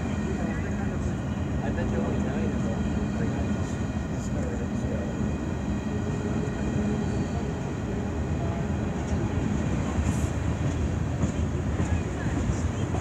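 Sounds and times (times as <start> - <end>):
freight train rumbling on rails: 0.0 - 13.0.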